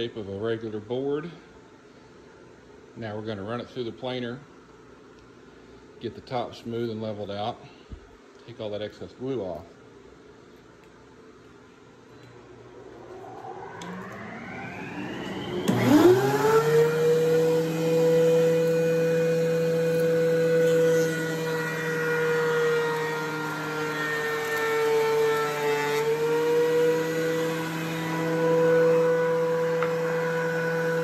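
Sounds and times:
thickness planer whining: 12.4s - 31.0s.

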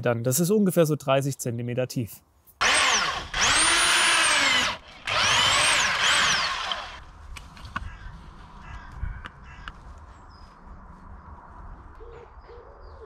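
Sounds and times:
electric drill driving auger: 2.6s - 7.1s.

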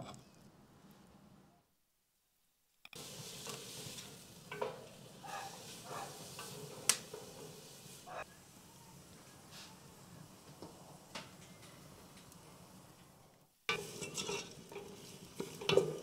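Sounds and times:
food sizzling in a pot: 2.9s - 13.0s, 13.7s - 16.0s
spoon scraping and clinking pot: 13.7s - 16.0s.

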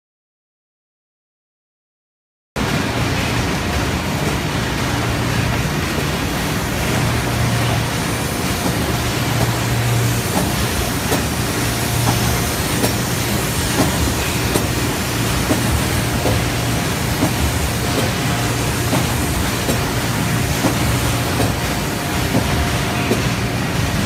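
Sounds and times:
low machine hum: 2.6s - 24.0s
wrapping machine running: 2.6s - 24.0s
machine clicks: 12.0s - 23.4s.

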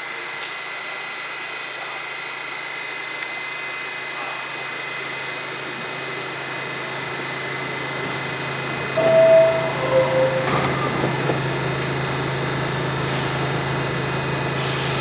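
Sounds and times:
subway train equipment humming: 8.0s - 14.0s
high whine: 9.0s - 11.7s.

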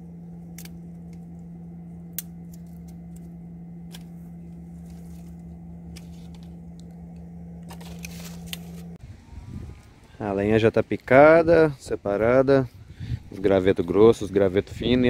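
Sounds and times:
steady low hum: 0.0s - 15.0s
dry twigs snapping: 0.4s - 1.4s, 2.0s - 9.0s.

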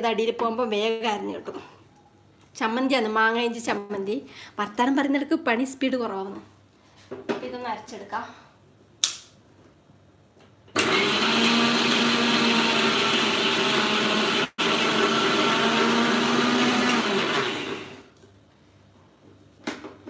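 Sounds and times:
mixer grinder running: 10.8s - 18.1s.

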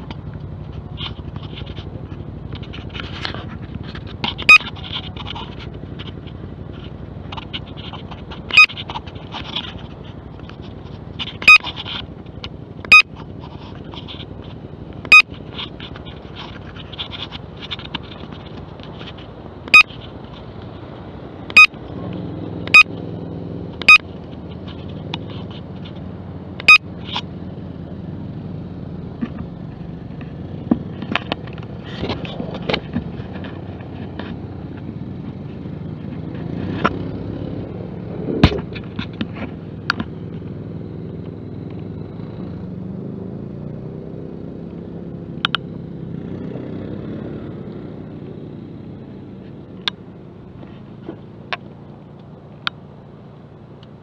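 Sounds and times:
sharp clicks with ringing tone: 8.3s - 9.0s, 11.2s - 13.2s, 15.0s - 15.8s, 19.7s - 20.0s, 21.4s - 21.8s, 22.6s - 23.0s, 23.8s - 24.1s, 26.6s - 26.9s.

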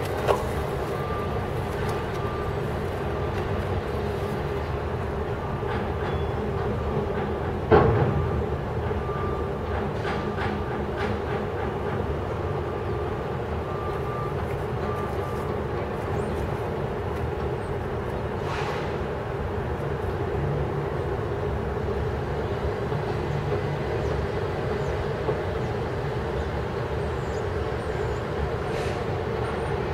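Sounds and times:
brief hiss: 18.4s - 19.0s.

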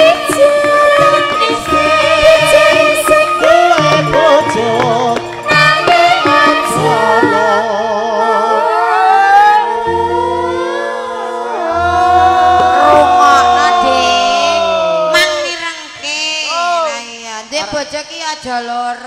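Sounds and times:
woman singing with vibrato: 0.0s - 11.4s.

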